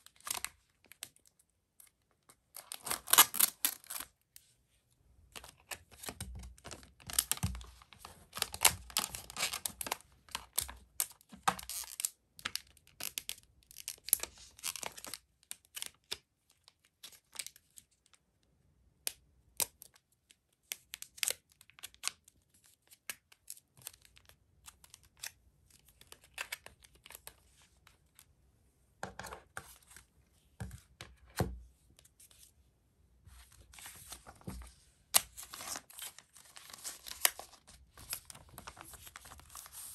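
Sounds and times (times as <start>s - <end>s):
plastic sleeve crinkling: 33.6s - 39.9s.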